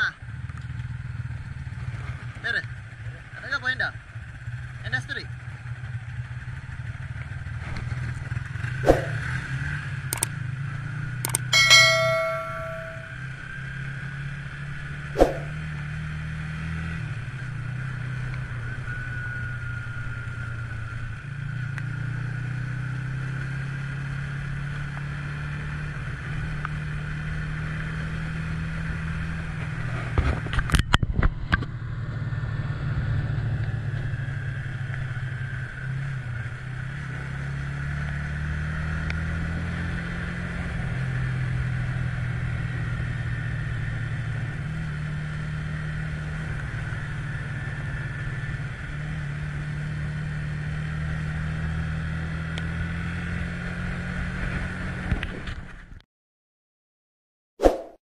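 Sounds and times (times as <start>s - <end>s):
sharp click: 11.3s - 13.1s.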